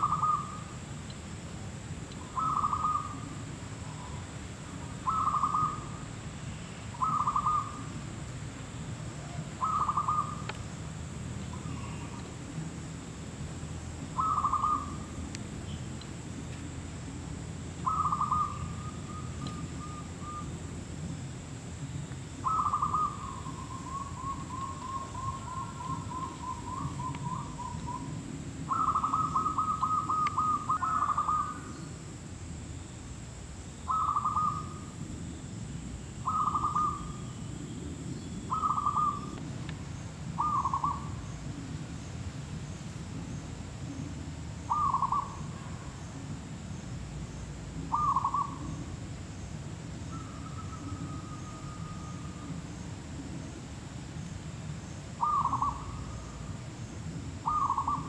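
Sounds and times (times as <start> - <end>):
doves cooing: 0.0 - 0.7, 2.2 - 4.3, 5.0 - 6.0, 7.0 - 7.9, 9.1 - 10.5, 14.1 - 15.2, 17.8 - 20.6, 22.4 - 31.9, 33.9 - 34.8, 36.2 - 37.3, 38.5 - 39.4, 40.4 - 41.8, 43.9 - 45.9, 47.8 - 48.9, 55.2 - 56.5, 57.4 - 58.0.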